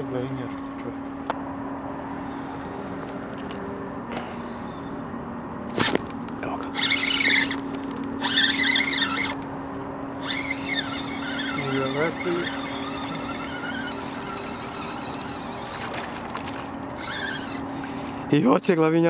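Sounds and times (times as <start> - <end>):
steady low hum: 0.0 - 19.0
fishing reel drag squealing: 6.7 - 9.5, 10.2 - 16.1, 16.9 - 18.2.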